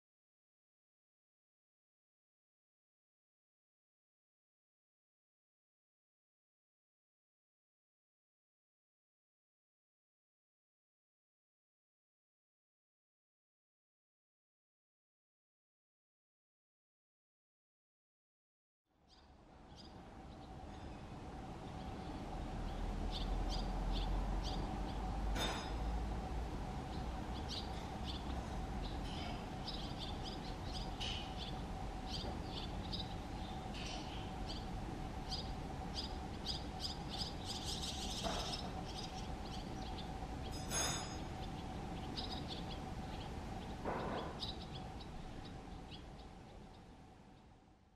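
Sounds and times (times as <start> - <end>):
steady low hum: 19.0 - 47.9
fledglings begging chirps: 21.6 - 25.2, 26.8 - 47.5.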